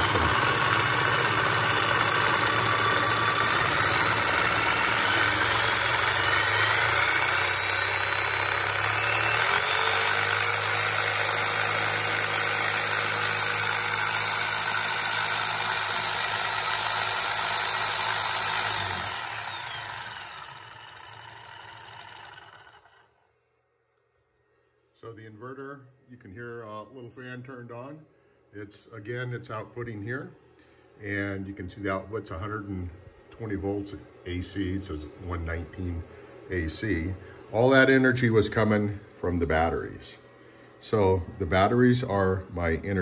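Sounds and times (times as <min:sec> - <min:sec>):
jigsaw motor whirring: 0:00.0 - 0:23.2.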